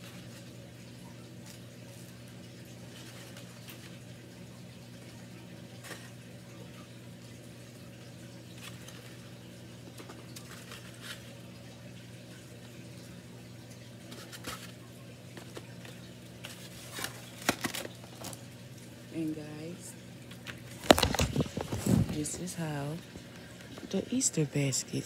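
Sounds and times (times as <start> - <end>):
low electrical hum: 0.0 - 25.0
plastic wrapping rustling: 1.4 - 4.1, 8.5 - 11.6, 14.0 - 18.6, 20.3 - 24.0.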